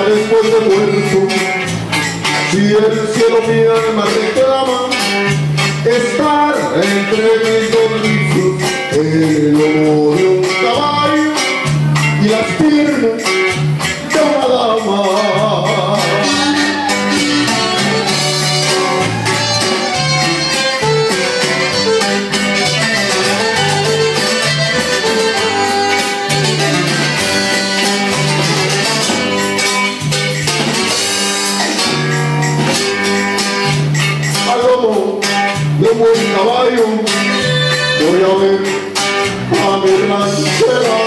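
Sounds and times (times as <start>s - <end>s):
bajo sexto: 0.0s - 41.0s
drums: 0.0s - 41.0s
electric bass walking line: 0.0s - 41.0s
button accordion: 16.1s - 33.6s, 37.1s - 38.4s.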